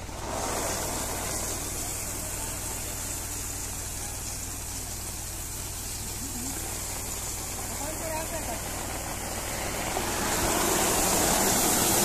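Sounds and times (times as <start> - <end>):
low engine hum: 0.0 - 12.0
chickpeas pouring onto a tarp: 0.1 - 2.8, 9.6 - 12.0.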